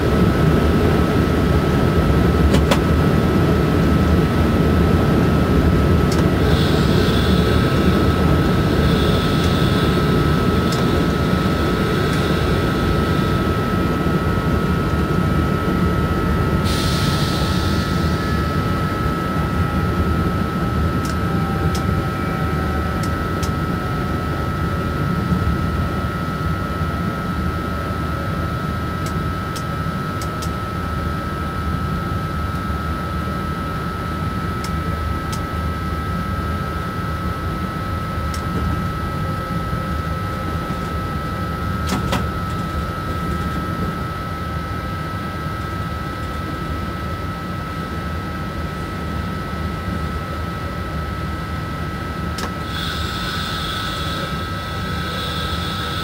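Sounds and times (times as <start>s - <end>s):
train wheels rumbling on rails: 0.0s - 23.6s, 52.4s - 56.0s
high whine: 0.0s - 27.2s, 36.9s - 56.0s.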